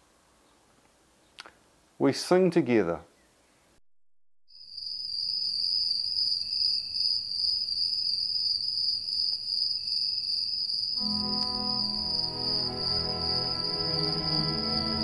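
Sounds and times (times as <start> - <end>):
crickets chirring: 4.6 - 15.0.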